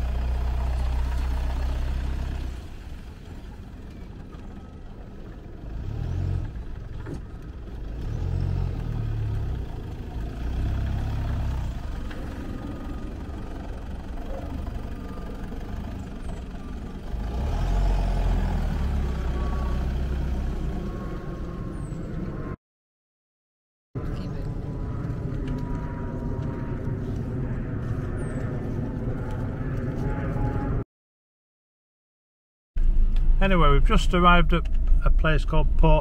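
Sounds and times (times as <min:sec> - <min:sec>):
car engine: 0:00.0 - 0:22.6, 0:24.0 - 0:30.8, 0:32.8 - 0:36.0
road noise: 0:00.0 - 0:22.6, 0:24.0 - 0:30.8, 0:32.8 - 0:36.0
low rumble: 0:11.0 - 0:17.2, 0:19.4 - 0:22.6, 0:24.0 - 0:30.8.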